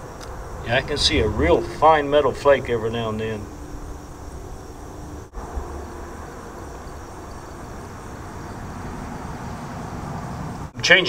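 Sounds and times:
low rumble: 0.0s - 7.1s.

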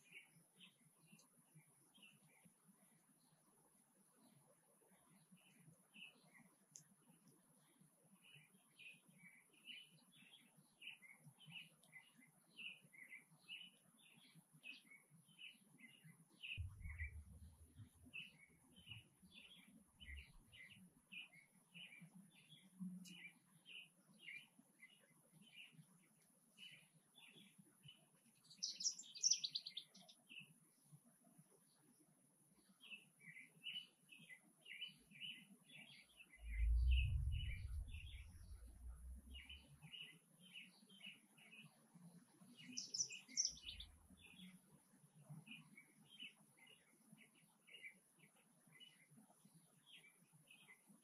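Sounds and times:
brief low rumble: 16.6s - 18.0s, 36.4s - 39.6s.

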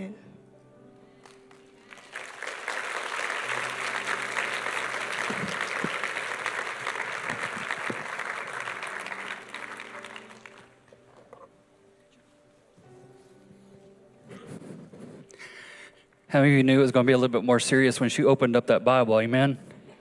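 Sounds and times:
audience applauding: 1.2s - 11.0s.

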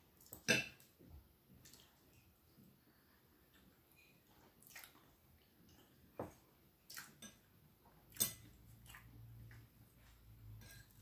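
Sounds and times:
knife and fork clinking on a plate: 0.4s - 0.8s.

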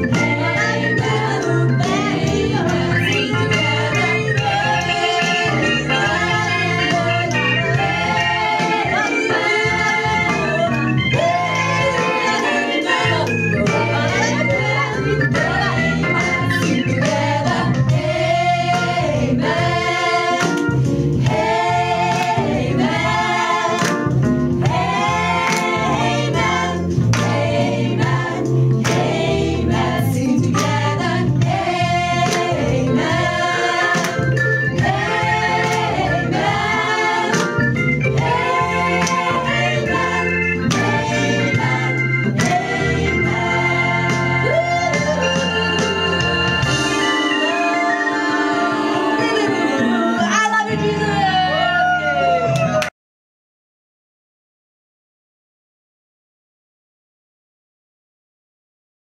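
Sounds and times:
women's ensemble singing: 0.0s - 51.6s
hand claps: 23.7s - 24.2s, 25.4s - 25.8s, 27.1s - 27.5s, 28.8s - 29.2s, 30.6s - 30.8s, 32.3s - 32.5s, 39.0s - 39.3s, 42.4s - 42.6s.

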